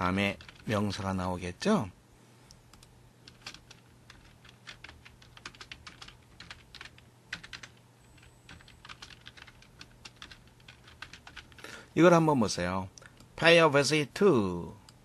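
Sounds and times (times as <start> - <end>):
typing on computer keyboard: 0.0 - 1.0, 2.7 - 11.7
steady low hum: 0.0 - 15.0.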